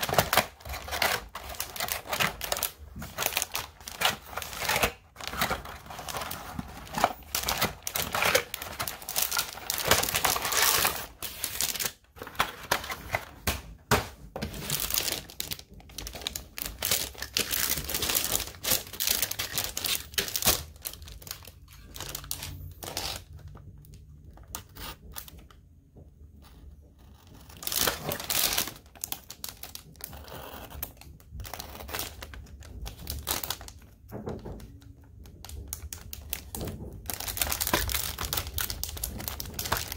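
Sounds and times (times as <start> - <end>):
knife cutting plastic bag: 0.0 - 13.2
plastic packaging crinkling: 0.0 - 25.4, 27.1 - 39.9.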